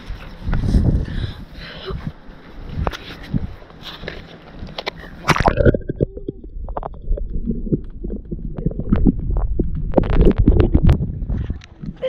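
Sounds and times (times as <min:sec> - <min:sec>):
muffled underwater rumble: 0:05.0 - 0:12.0
water splashes: 0:05.2 - 0:12.0.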